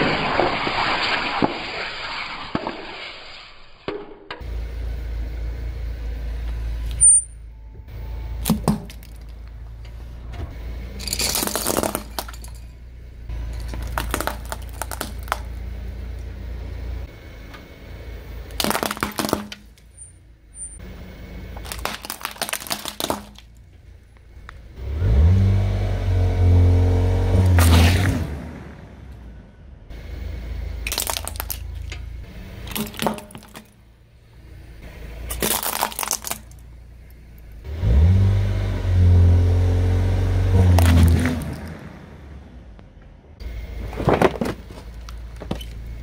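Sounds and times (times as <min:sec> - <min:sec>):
car engine idling and revving: 0:04.4 - 0:46.0
crayons snapping under tyre: 0:13.7 - 0:15.6, 0:18.5 - 0:19.8, 0:21.6 - 0:23.6, 0:30.9 - 0:31.6, 0:35.3 - 0:36.6.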